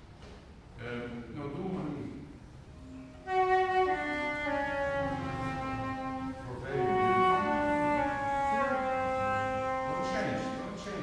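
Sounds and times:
flute playing held notes: 0:02.8 - 0:11.0.

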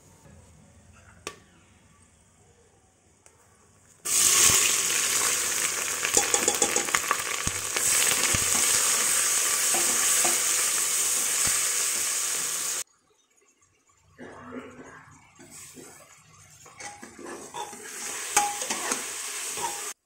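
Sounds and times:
onions sizzling in oil: 0:04.1 - 0:12.8, 0:15.4 - 0:20.0.

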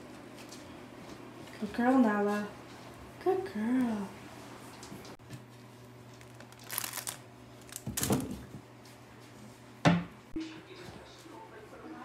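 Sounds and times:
rustling and crinkling of plush toys: 0:06.0 - 0:08.5.

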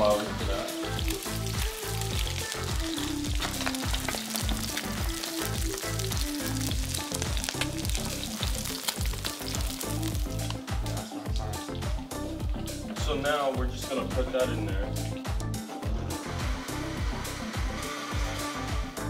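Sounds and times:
food sizzling in a frying pan: 0:00.0 - 0:12.8
background music with beat: 0:00.0 - 0:19.0.

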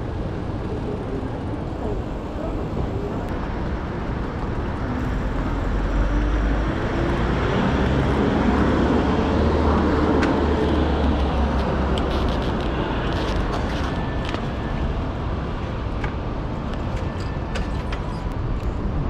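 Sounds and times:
city street traffic: 0:00.0 - 0:19.0
vehicle engine rumble: 0:00.0 - 0:19.0.

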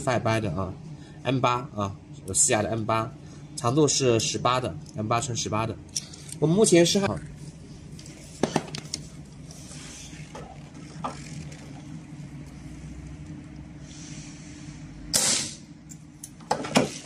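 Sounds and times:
steady low hum: 0:00.0 - 0:17.0
stud welder discharge crack: 0:15.1 - 0:15.7.

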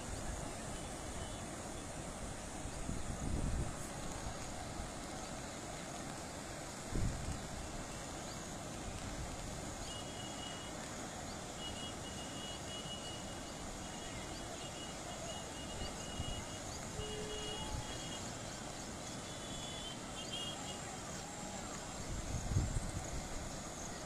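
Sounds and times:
river in flood roaring: 0:00.0 - 0:24.0.

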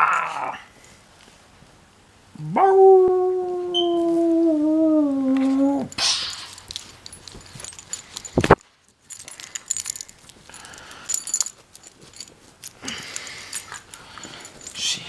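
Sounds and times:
puppy howling: 0:02.4 - 0:06.0
rustling: 0:03.8 - 0:15.0
collar tags jingling: 0:05.9 - 0:15.0.

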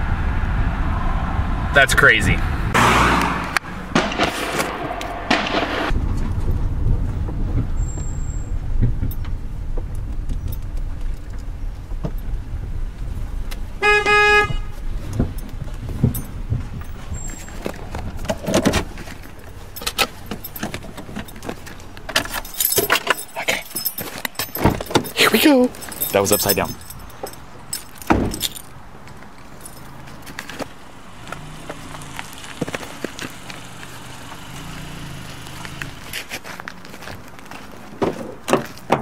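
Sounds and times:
car engine and road rumble: 0:00.0 - 0:39.0
car horn toot: 0:13.8 - 0:14.8.

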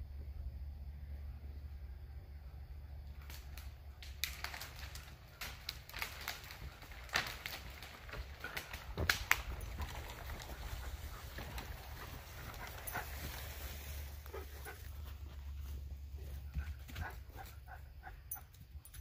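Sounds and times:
dry branches snapping: 0:03.2 - 0:13.1
brush rustling: 0:03.2 - 0:17.6.

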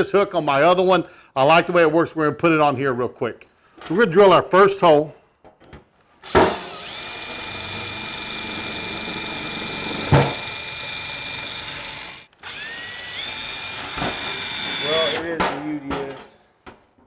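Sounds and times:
power drill boring through steel: 0:06.2 - 0:15.3.

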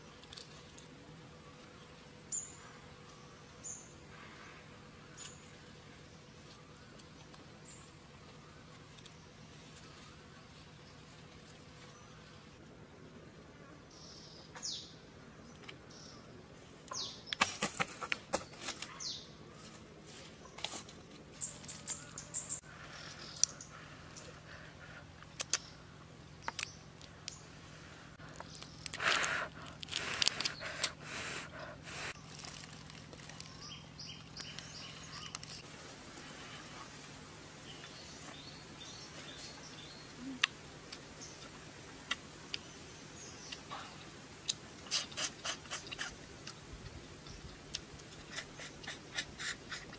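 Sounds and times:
prawn shells crackling: 0:28.2 - 0:31.3, 0:32.0 - 0:35.6.

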